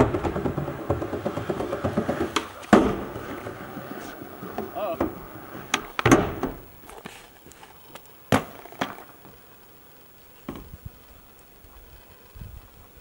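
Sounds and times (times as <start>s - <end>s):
skateboard clacking on metal roof: 0.0s - 6.8s.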